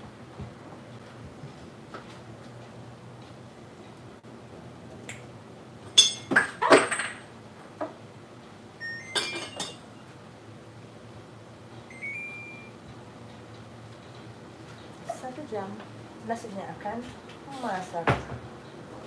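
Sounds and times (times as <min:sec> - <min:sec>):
kitchenware clinking and knocking: 0:06.0 - 0:07.2, 0:09.1 - 0:09.8
rice cooker rising beep: 0:08.8 - 0:09.6, 0:11.9 - 0:12.8.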